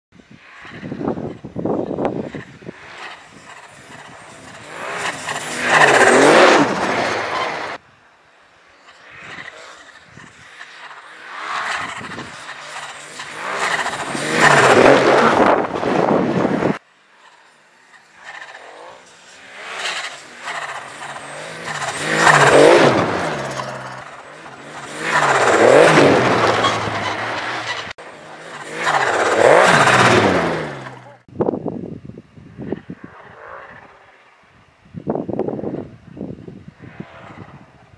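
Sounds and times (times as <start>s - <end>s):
snowmobile engine accelerating past: 0.4s - 7.8s, 8.8s - 31.3s.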